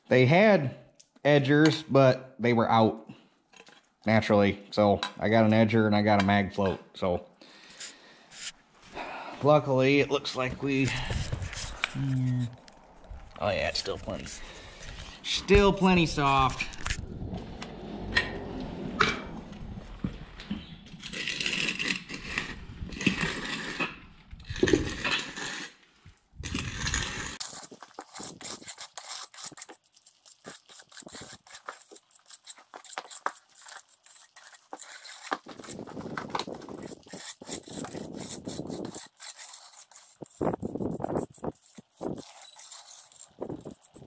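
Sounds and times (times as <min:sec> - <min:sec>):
tools scraping wet concrete: 0:09.7 - 0:12.8, 0:20.4 - 0:44.0
rustling: 0:10.0 - 0:15.4, 0:19.8 - 0:44.0.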